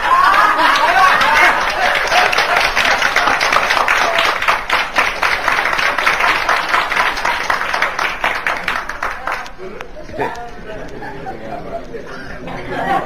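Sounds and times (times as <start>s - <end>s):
audience laughter: 0.0s - 4.2s, 10.6s - 13.0s
audience clapping: 0.0s - 9.9s.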